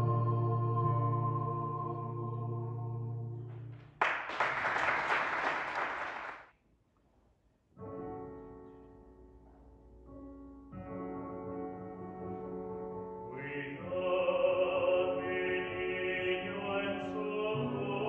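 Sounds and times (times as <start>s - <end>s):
a cappella vocal quartet singing: 0.0s - 3.3s, 13.4s - 18.0s
audience applause: 4.0s - 6.5s.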